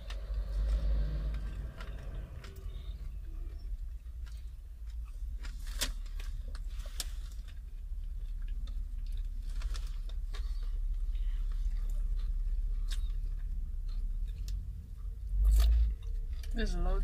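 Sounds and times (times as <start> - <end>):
steady low rumble: 0.0 - 17.0
chewing crispy fried chicken: 4.1 - 16.6.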